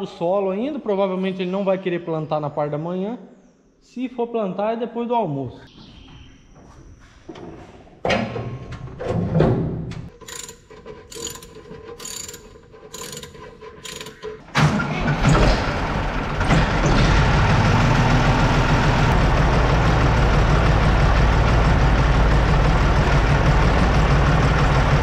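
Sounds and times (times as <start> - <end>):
tractor diesel engine running: 10.2 - 25.0.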